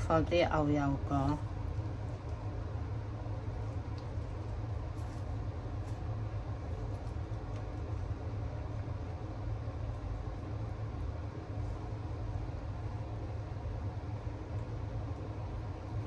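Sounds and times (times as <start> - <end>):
low background rumble: 0.0 - 16.0
faint clicks of food handling: 3.6 - 6.1.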